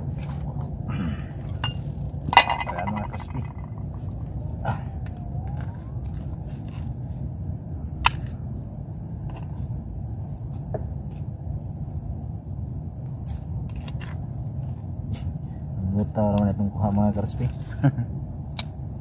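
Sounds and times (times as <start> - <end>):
metallic clatter: 1.6 - 3.9
spoon clinking against pot: 2.4 - 3.6.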